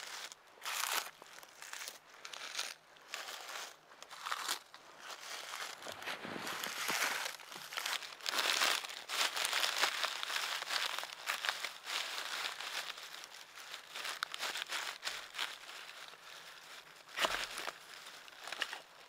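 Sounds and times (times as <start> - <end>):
crinkling and crunching rustles: 0.0 - 19.0.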